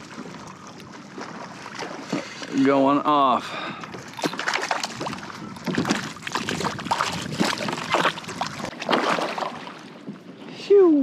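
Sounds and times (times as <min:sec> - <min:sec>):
fish thrashing and splashing: 0:00.0 - 0:02.6, 0:03.9 - 0:10.0.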